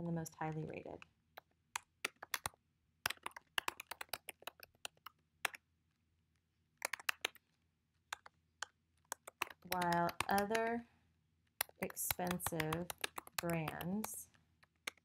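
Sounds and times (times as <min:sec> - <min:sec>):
computer keyboard typing: 0:01.4 - 0:05.6, 0:06.8 - 0:07.5, 0:08.1 - 0:10.8, 0:11.6 - 0:15.0.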